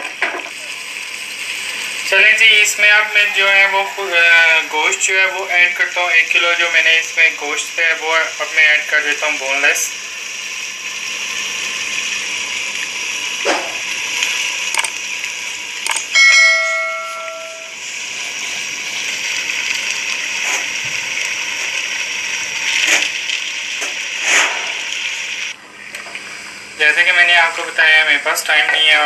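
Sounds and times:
meat sizzling in oil: 0:00.0 - 0:29.0
metallic ring: 0:16.1 - 0:17.8.

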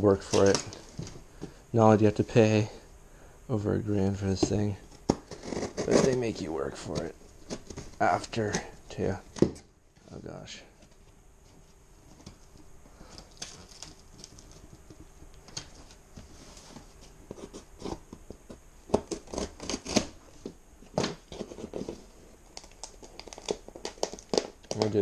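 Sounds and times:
fingers picking at tape: 0:17.3 - 0:20.2, 0:21.4 - 0:25.0
scissors cutting packing tape: 0:19.0 - 0:20.1.

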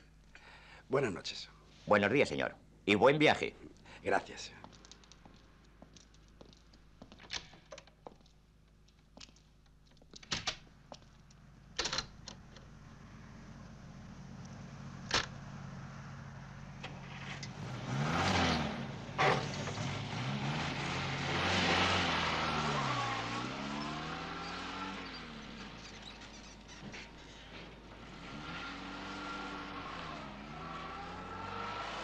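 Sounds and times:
car engine starting and revving: 0:11.4 - 0:32.0.

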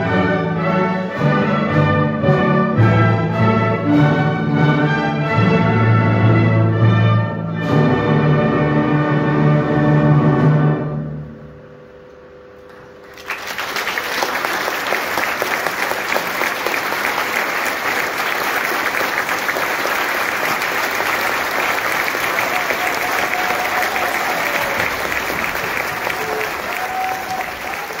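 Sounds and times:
large audience applauding: 0:13.0 - 0:28.0.

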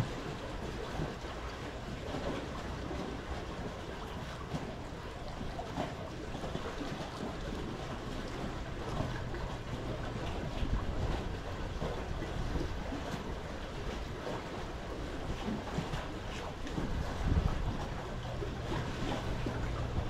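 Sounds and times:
wind on microphone: 0:05.2 - 0:20.0.

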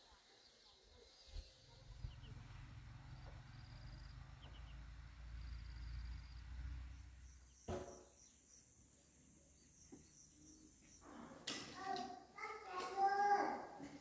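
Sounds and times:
insects chirping: 0:03.0 - 0:11.0
sharp knock: 0:07.7 - 0:08.2.

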